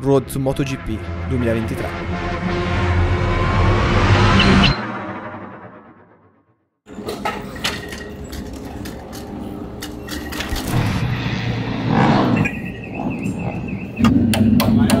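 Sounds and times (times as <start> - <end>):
rushing noise: 0.6 - 6.0
clicks and knocks of tools: 7.0 - 10.8.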